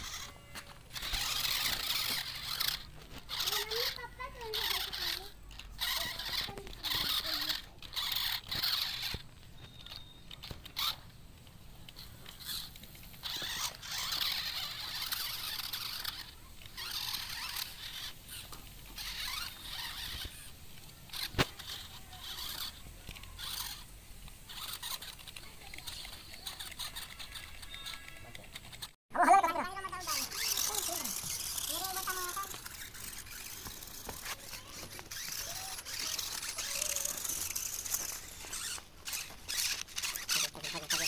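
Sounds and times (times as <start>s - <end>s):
toy truck motors whirring: 0.0s - 41.0s.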